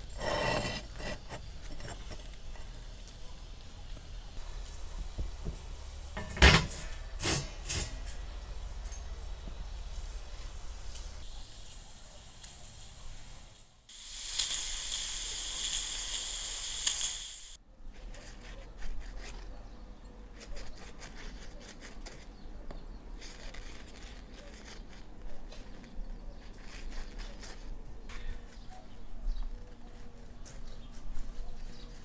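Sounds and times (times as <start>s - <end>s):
pastry brush dabbing dough: 0.0s - 11.2s, 17.8s - 32.0s
loud high hiss: 2.2s - 17.6s.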